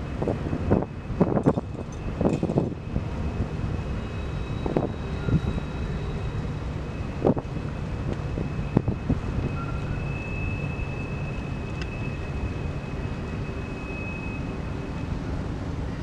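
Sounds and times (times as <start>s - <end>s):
wind buffeting microphone: 0.0s - 3.8s, 7.1s - 9.7s
high-pitched whine: 0.7s - 16.0s.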